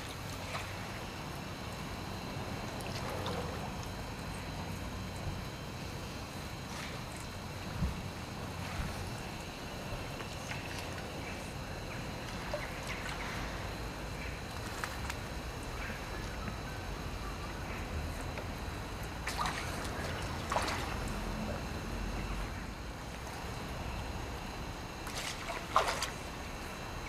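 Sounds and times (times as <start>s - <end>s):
water splashes: 0.0s - 1.2s, 19.2s - 21.7s, 25.0s - 26.5s
water lapping around wooden posts: 0.0s - 23.7s, 24.4s - 26.9s.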